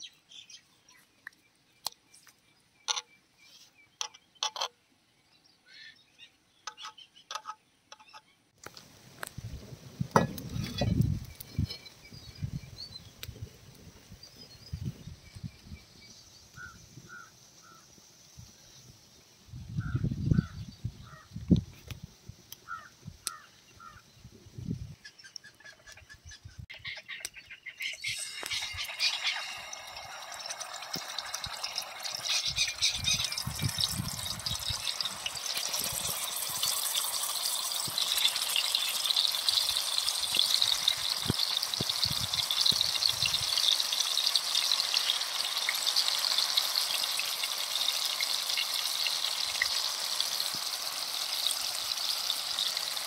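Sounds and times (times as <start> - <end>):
birds chirping: 22.6 - 36.5
oil sizzling on hot griddle: 27.8 - 53.0.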